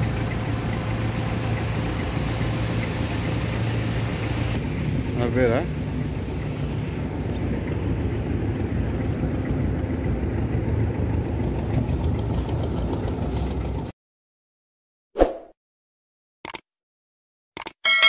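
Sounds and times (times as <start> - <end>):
engine rumbling: 0.0 - 13.9.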